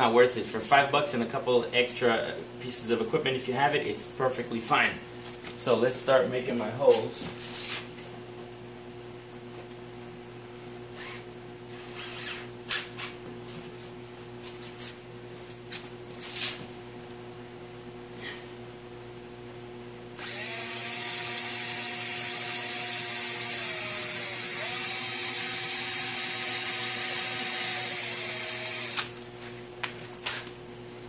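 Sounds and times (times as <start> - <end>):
cordless drill boring into metal: 11.0 - 12.5, 20.2 - 29.2.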